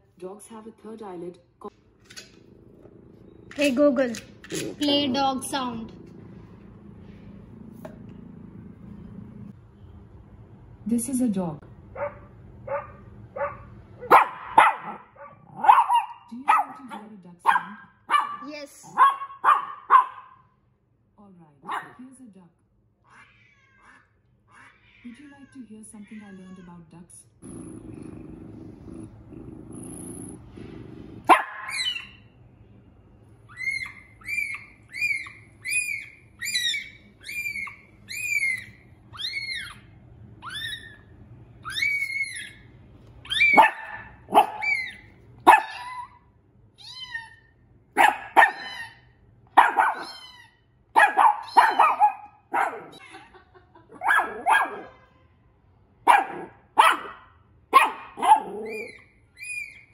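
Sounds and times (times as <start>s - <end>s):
dog barking: 11.9s - 20.5s, 21.6s - 22.0s, 31.3s - 32.2s, 43.4s - 46.0s, 48.0s - 50.2s, 50.9s - 53.0s, 53.9s - 55.0s, 56.0s - 59.0s.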